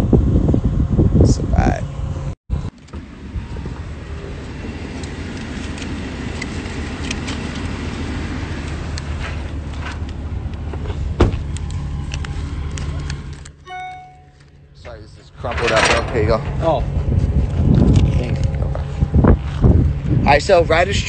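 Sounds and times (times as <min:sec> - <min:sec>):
vehicle engine idling: 0:03.0 - 0:13.6
car door shutting: 0:10.7 - 0:11.6.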